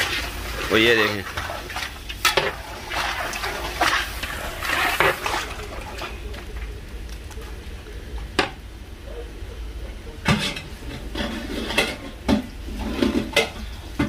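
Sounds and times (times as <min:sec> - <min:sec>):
steady low hum: 0:00.0 - 0:14.0
ladle scraping metal pot: 0:01.2 - 0:06.2, 0:10.3 - 0:13.8.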